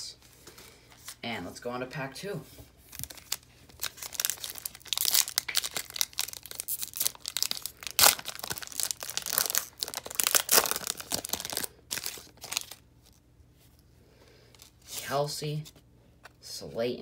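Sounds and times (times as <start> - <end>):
foil wrapper crinkling and tearing: 2.8 - 13.2.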